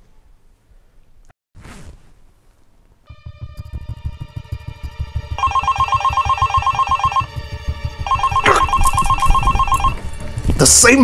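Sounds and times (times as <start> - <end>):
phone ringtone trilling: 5.3 - 7.4, 8.0 - 10.0.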